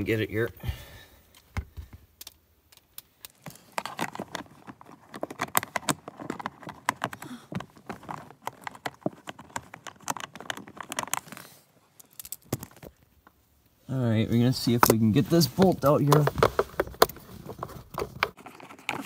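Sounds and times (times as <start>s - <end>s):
hand and sleeve rubbing: 14.4s - 19.0s.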